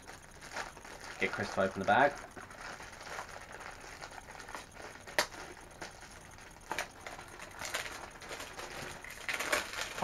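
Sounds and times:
cardboard box and bag crinkling: 0:00.0 - 0:10.0.

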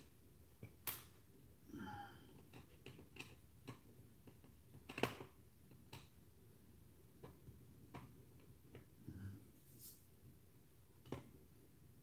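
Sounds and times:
plastic clicks and taps on laptop: 0:02.4 - 0:06.2.

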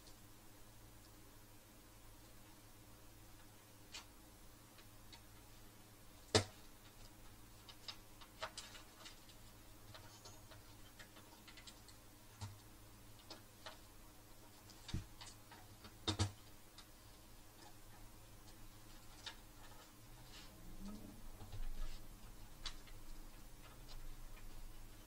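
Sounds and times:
faint steady hum: 0:00.0 - 0:25.0
clicks and knocks of handling parts: 0:06.2 - 0:20.0.

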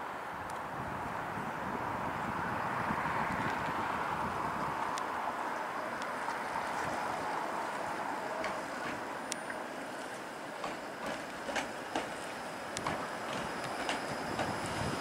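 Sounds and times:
streetcar running noise: 0:00.0 - 0:15.0
wheels clicking on rails: 0:07.9 - 0:15.0.

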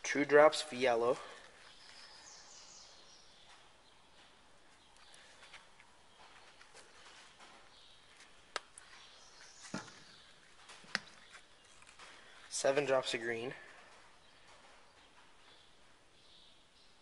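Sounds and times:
plastic bottles set down: 0:09.6 - 0:11.2.

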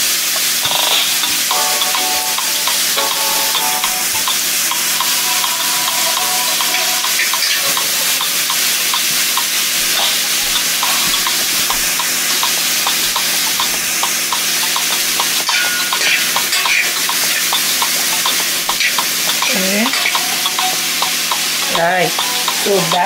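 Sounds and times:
vegetables sizzling in a pan: 0:00.0 - 0:23.0.

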